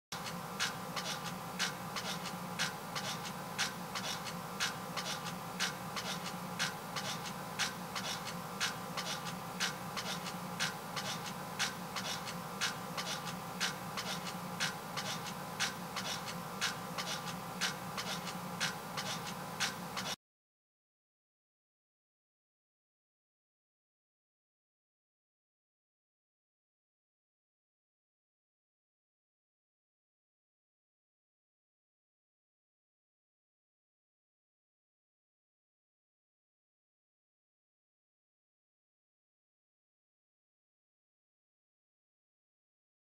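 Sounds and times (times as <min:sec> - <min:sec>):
sharp rhythmic clicks: 0:00.2 - 0:20.1
steady low hum: 0:00.2 - 0:20.2.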